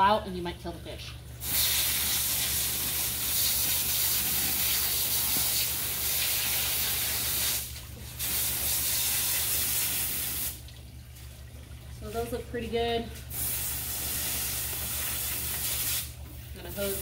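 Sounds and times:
hose nozzle spraying water: 0:01.4 - 0:10.6, 0:13.2 - 0:17.0.

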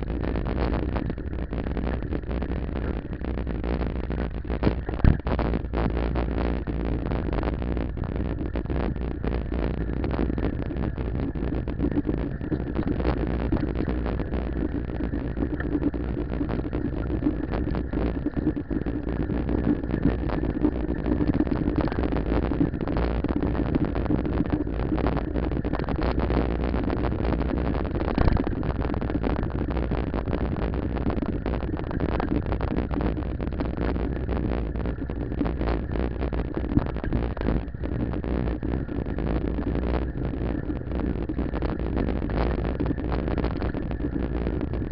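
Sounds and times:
wind and road rumble: 0:00.0 - 0:44.9
bicycle knocks and rattles: 0:04.8 - 0:05.3, 0:28.2 - 0:28.5.

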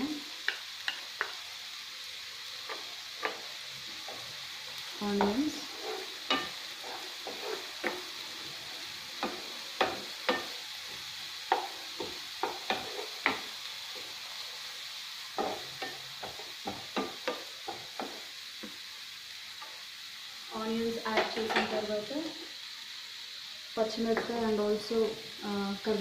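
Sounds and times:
onions sizzling in hot oil: 0:00.0 - 0:26.0
wooden spatula scraping a pan: 0:02.6 - 0:14.2, 0:15.4 - 0:18.8.

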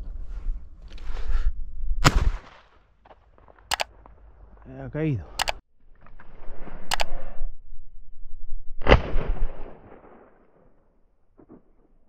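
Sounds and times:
shotgun shots with echo: 0:02.0 - 0:02.7.

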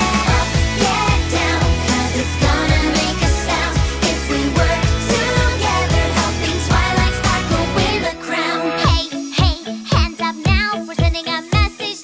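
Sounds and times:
pop music: 0:00.0 - 0:12.0.

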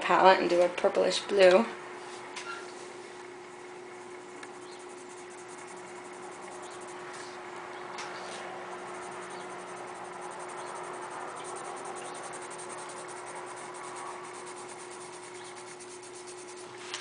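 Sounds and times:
colored pencil shading on paper: 0:04.3 - 0:07.3, 0:08.8 - 0:16.8.

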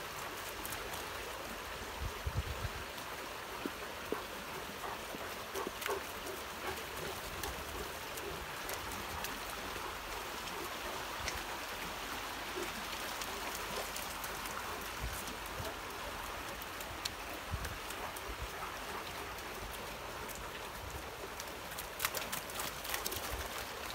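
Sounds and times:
stream flowing over stones: 0:00.0 - 0:23.9
light clicks and ticks: 0:11.2 - 0:11.5, 0:12.6 - 0:23.9.

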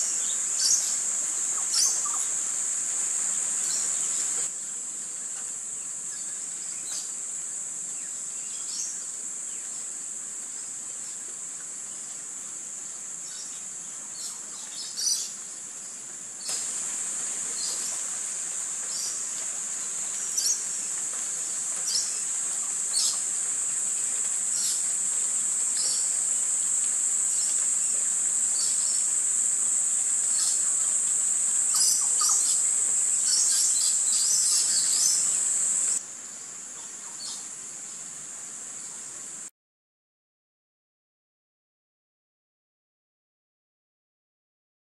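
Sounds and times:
bird chirps: 0:00.0 - 0:02.3, 0:30.2 - 0:36.0
high-pitched insect drone: 0:16.5 - 0:36.0.

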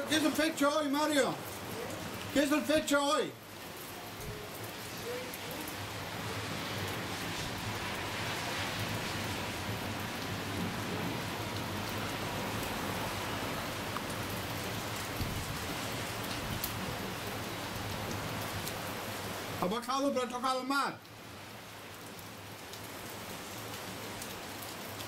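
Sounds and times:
steady rain: 0:00.0 - 0:25.0.

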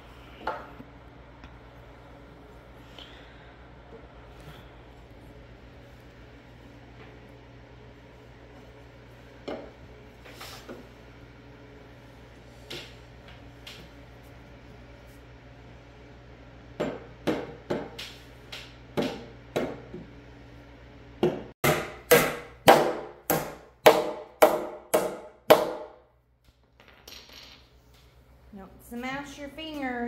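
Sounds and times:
hammer hitting a nail: 0:21.2 - 0:26.0.

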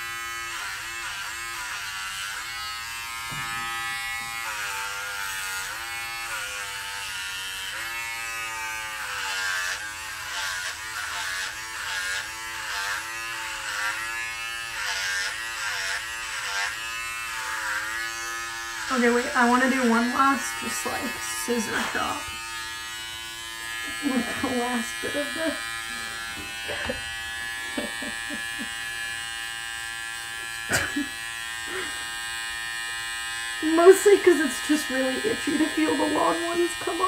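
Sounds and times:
electric hair clippers humming: 0:00.0 - 0:37.0.

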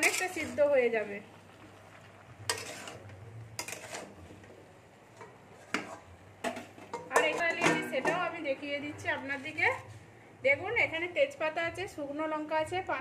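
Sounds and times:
metal spatula scraping metal pan: 0:00.0 - 0:01.0, 0:02.4 - 0:04.3, 0:05.2 - 0:06.2.

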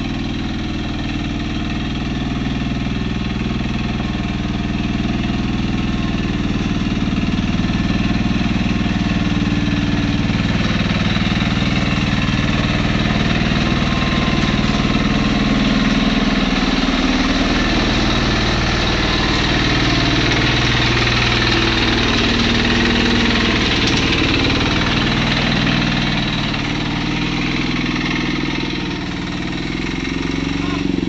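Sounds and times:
dumper engine running: 0:00.0 - 0:31.0.

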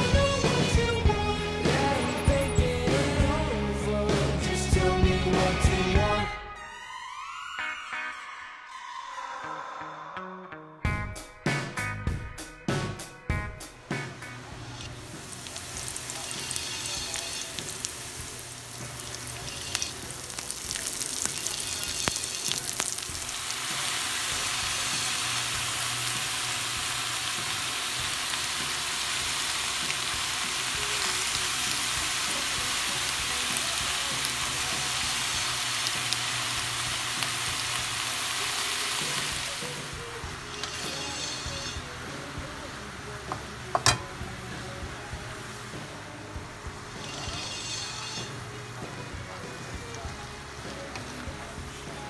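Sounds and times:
wooden spoon scraping wok: 0:14.7 - 0:23.1, 0:40.4 - 0:41.9, 0:46.9 - 0:48.6
food frying in hot oil: 0:14.8 - 0:42.0, 0:46.6 - 0:48.6.

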